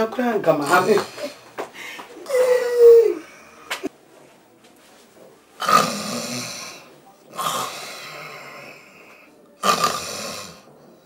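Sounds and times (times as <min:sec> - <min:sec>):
man snoring: 0:05.6 - 0:10.7.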